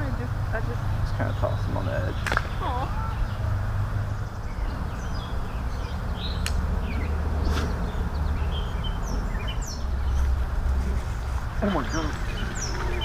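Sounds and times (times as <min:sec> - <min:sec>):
small birds chirping: 0:00.0 - 0:13.0
steady low rumble: 0:00.0 - 0:13.0
sharp clicks: 0:06.4 - 0:06.6.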